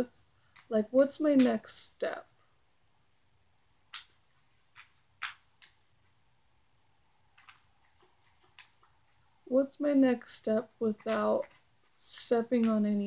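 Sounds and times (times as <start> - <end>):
cards shuffling and snapping: 3.9 - 6.2, 7.3 - 9.2, 10.8 - 13.0.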